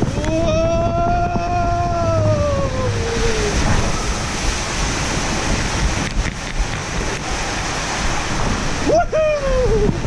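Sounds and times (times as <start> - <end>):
person yelling: 0.0 - 3.6, 8.8 - 10.0
water rushing under slide tube: 0.0 - 10.0
wind on microphone: 0.0 - 10.0.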